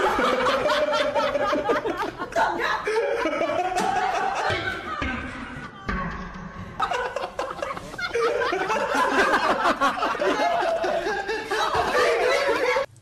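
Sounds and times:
snickering laughter: 6.8 - 12.9.

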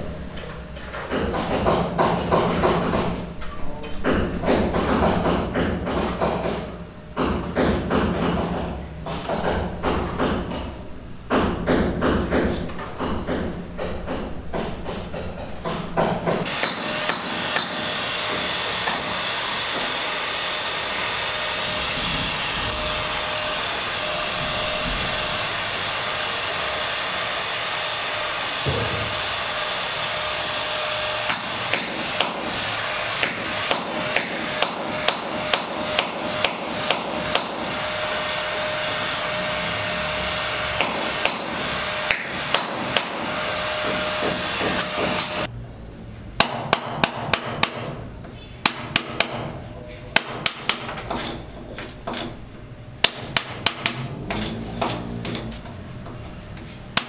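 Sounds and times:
hammer striking chisel into concrete: 4.0 - 20.0, 31.2 - 32.5, 33.1 - 37.7, 40.7 - 45.5, 46.4 - 48.0, 48.6 - 52.4, 53.0 - 55.5.

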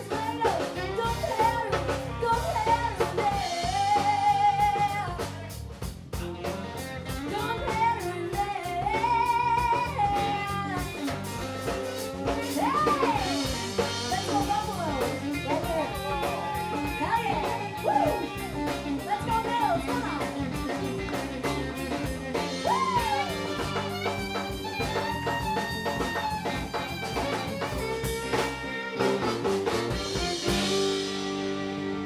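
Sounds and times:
drum kit beat: 0.0 - 32.0
electric guitar: 0.0 - 32.0
bowed fiddle: 15.5 - 32.0.

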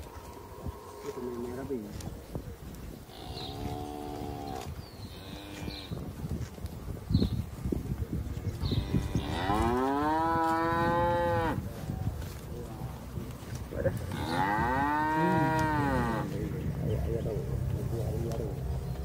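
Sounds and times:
cow mooing: 3.1 - 5.9, 8.7 - 11.6, 14.0 - 16.4.

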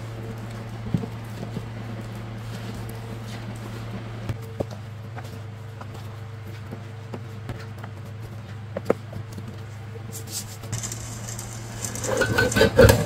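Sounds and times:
steady low hum: 0.0 - 13.0
paper rustling: 10.2 - 13.0.

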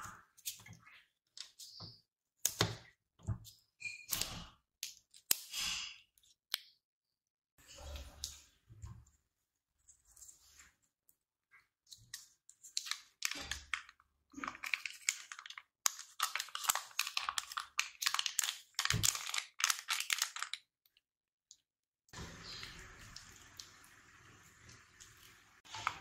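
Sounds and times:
food packaging crinkling: 12.2 - 20.7.

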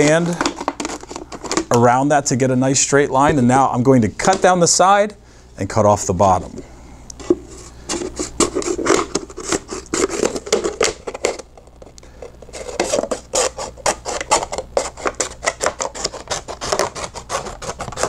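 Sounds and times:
scissors cutting plastic bottle: 12.6 - 18.0.

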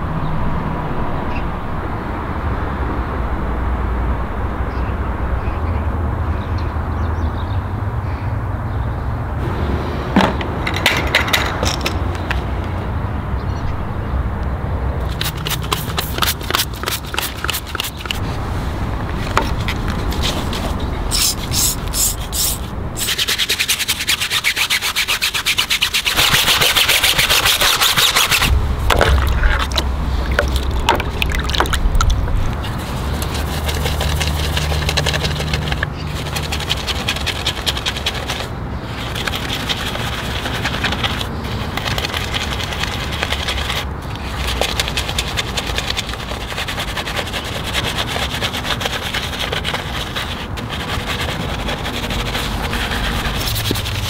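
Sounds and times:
hand scrubbing a car: 15.0 - 54.0
low machine hum: 28.4 - 36.2.

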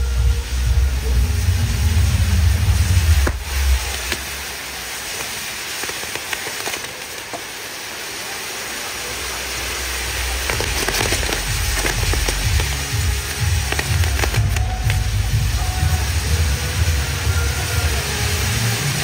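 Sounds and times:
low thuds: 0.0 - 4.5
fireworks crackling: 0.0 - 19.0.

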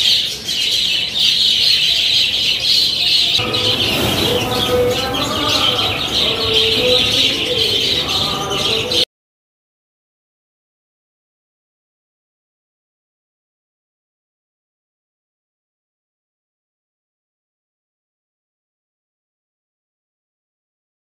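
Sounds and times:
budgerigars chattering and chirping: 0.0 - 9.0.

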